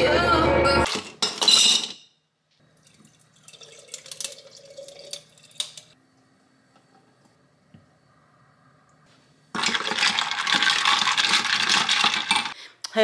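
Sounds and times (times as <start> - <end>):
water dripping: 2.6 - 6.9.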